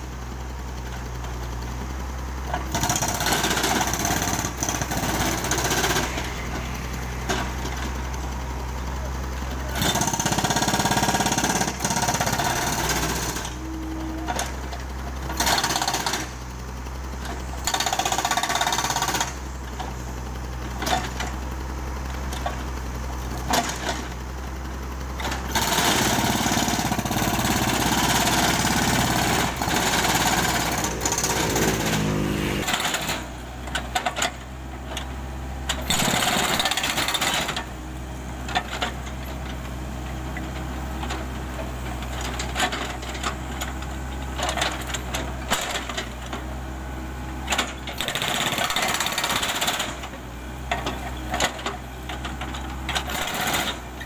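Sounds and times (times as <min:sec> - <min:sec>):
diesel engine running: 0:00.0 - 0:54.0
hydraulic breaker hammering concrete: 0:47.6 - 0:50.0.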